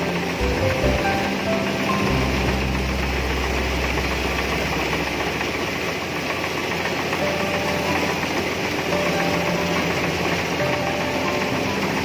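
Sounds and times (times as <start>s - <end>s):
deep low hum: 0.0s - 11.4s
combine harvester engine drone: 0.0s - 12.0s.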